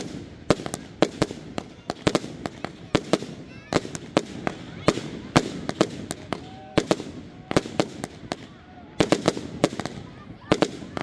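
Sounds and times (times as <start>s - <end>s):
fireworks bangs and cracks: 0.0s - 11.0s.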